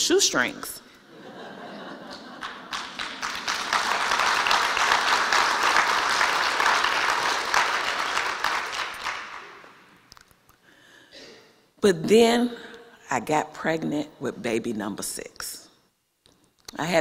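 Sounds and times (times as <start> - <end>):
audience applauding: 2.1 - 9.8.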